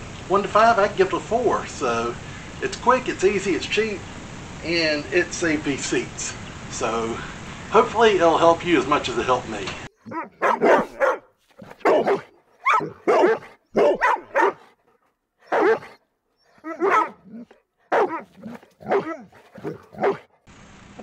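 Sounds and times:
dog barking: 10.0 - 14.8, 15.4 - 16.0, 16.6 - 20.3.

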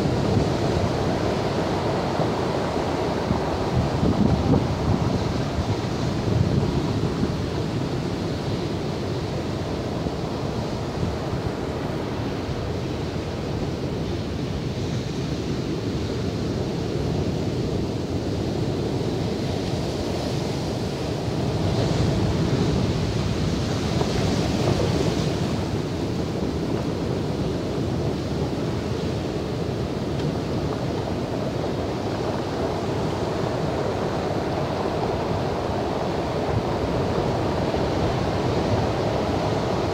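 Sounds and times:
wind rumbling on microphone: 0.0 - 39.9
heavy surf breaking: 20.4 - 39.9.

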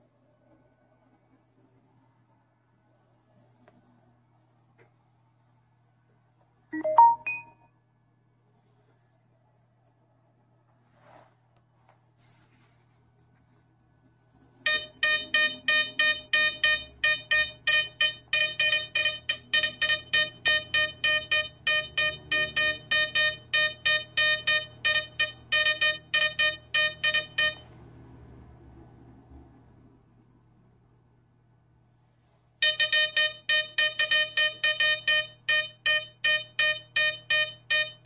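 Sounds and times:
metal detector beeping: 6.8 - 7.6, 14.7 - 27.6, 32.6 - 38.0.

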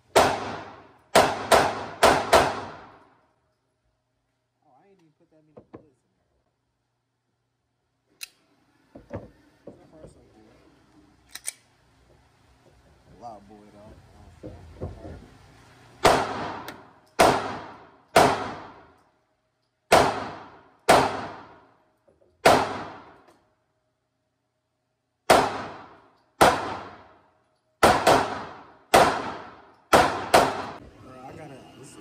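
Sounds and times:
pistol shots echoing indoors: 0.0 - 3.4, 16.0 - 23.8, 25.1 - 30.8.

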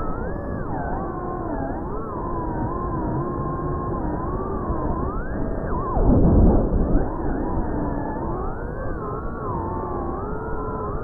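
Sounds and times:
drone motors whining: 0.0 - 6.1
low rush of wind: 2.2 - 11.0.

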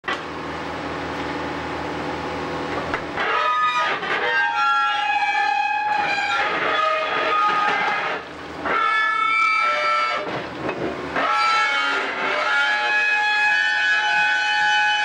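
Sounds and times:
diesel engine running: 0.0 - 14.7
steel rails screeching: 3.2 - 10.5, 11.2 - 15.0.

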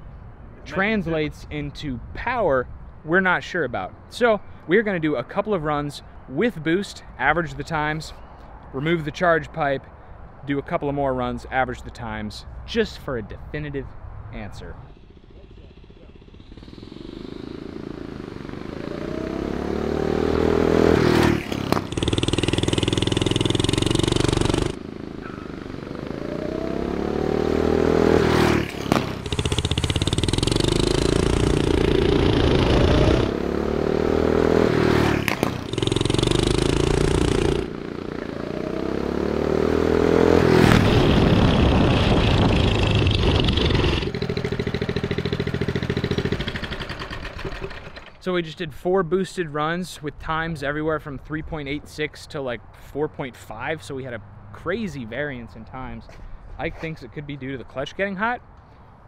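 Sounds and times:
small engine accelerating at full throttle: 14.9 - 48.2.

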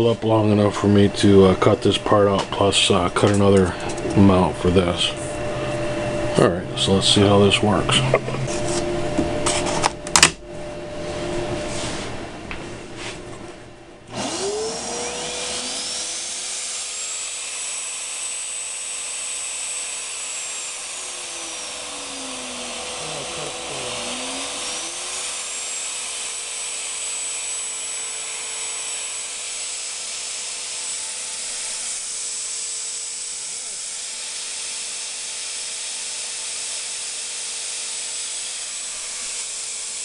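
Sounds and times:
router motor whining: 14.1 - 40.0.

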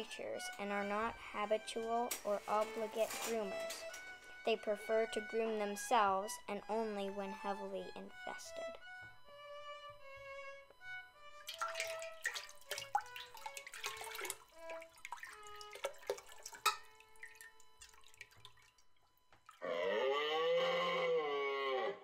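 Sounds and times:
water dripping and splashing: 11.5 - 19.6
long moaning call: 19.6 - 22.0.

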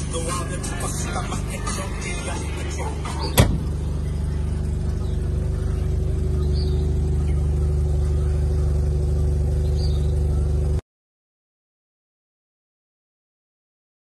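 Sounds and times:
rotary engine idling: 0.0 - 10.8.

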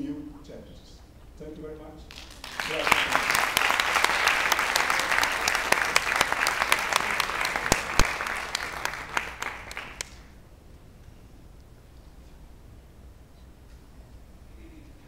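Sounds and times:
audience applauding: 2.1 - 10.4.

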